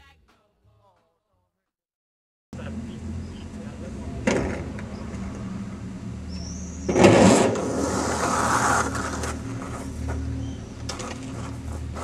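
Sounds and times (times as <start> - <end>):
skateboard wheels rolling: 6.9 - 12.0.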